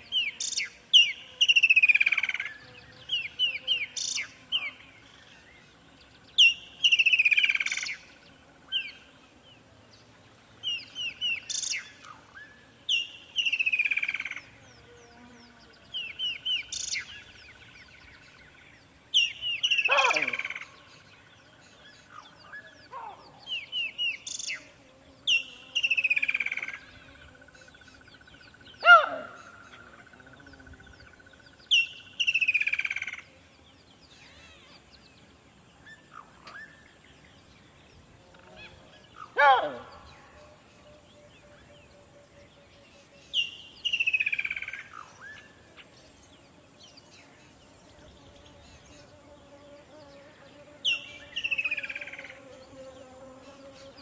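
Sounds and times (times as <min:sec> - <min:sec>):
sharp bird calls: 0:19.2 - 0:21.0, 0:22.0 - 0:24.6, 0:27.9 - 0:33.2, 0:38.6 - 0:40.2.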